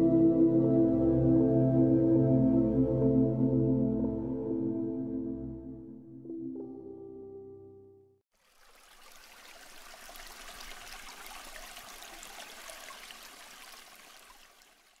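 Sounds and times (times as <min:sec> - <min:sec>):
running water rushing: 0:08.3 - 0:15.0.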